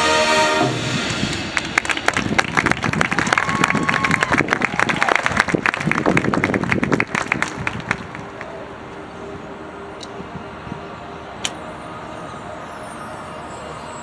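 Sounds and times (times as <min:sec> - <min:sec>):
crowd applause: 0:01.1 - 0:08.7.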